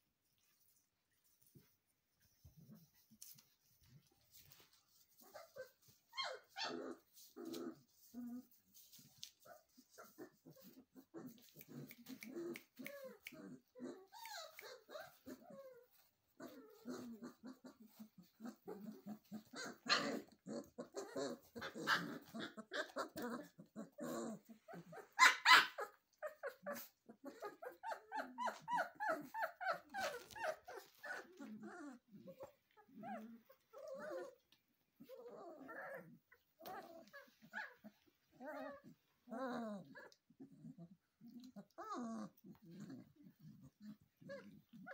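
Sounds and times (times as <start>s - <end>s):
puppies growling and whimpering: 4.0s - 44.9s
puppies yelping: 16.4s - 34.4s.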